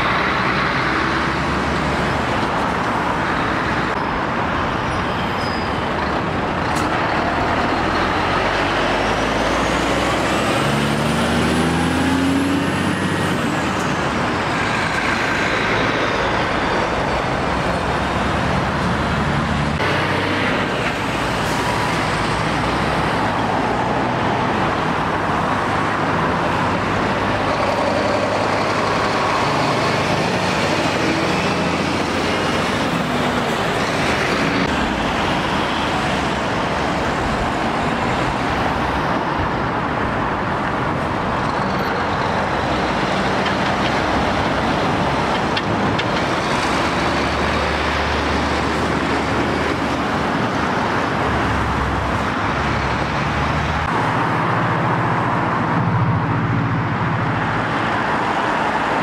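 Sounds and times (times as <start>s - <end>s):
lorries driving past: 0.0s - 59.0s
traffic noise: 0.0s - 59.0s.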